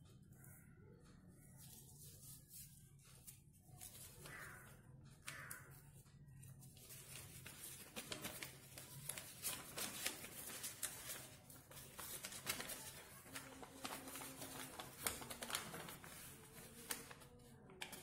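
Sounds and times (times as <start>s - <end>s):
paper rustling and crinkling: 6.4s - 18.0s.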